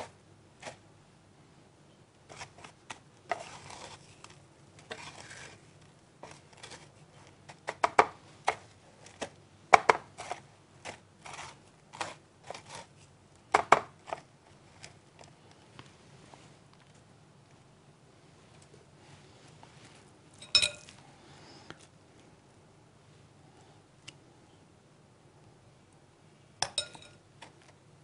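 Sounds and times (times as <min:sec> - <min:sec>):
breadcrumbs rustling: 0:02.2 - 0:17.7
dishes and utensils clinking: 0:20.4 - 0:21.0, 0:26.6 - 0:27.2.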